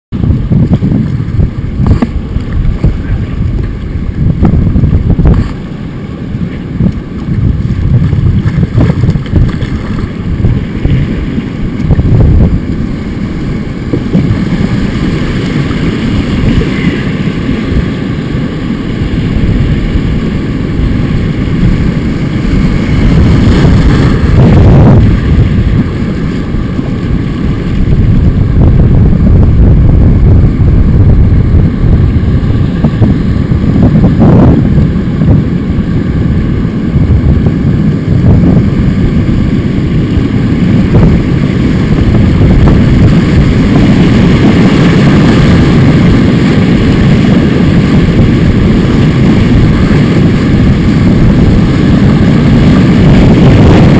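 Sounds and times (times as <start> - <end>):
wind rumbling on microphone: 0.0 - 53.9
paddle splashes: 5.3 - 12.0
river rapids rushing: 13.2 - 28.0.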